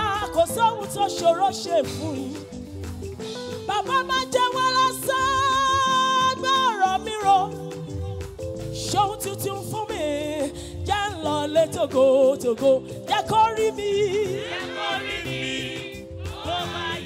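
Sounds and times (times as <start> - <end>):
instrumental accompaniment: 0.0 - 17.0
choir singing gospel song: 13.7 - 17.0.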